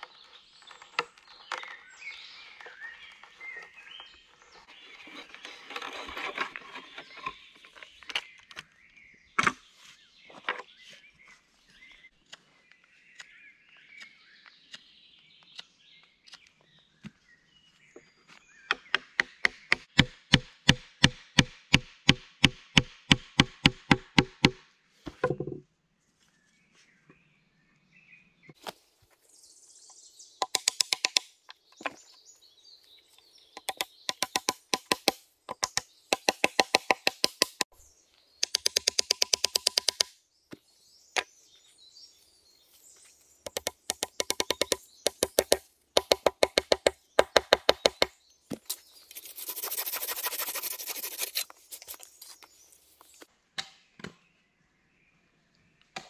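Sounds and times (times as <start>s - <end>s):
birds chirping: 0.0s - 19.9s, 26.4s - 53.3s
hammer blows on wooden peg: 33.6s - 37.7s, 43.5s - 48.1s.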